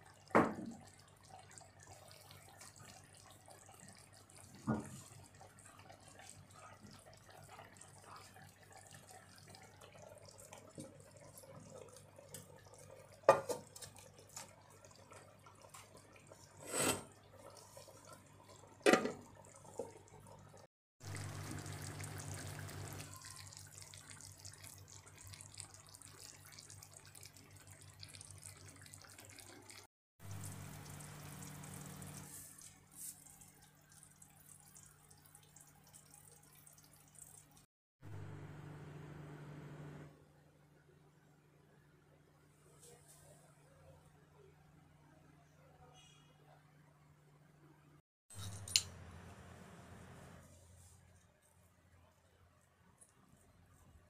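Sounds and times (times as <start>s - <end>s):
food simmering bubbling: 0.0s - 37.7s.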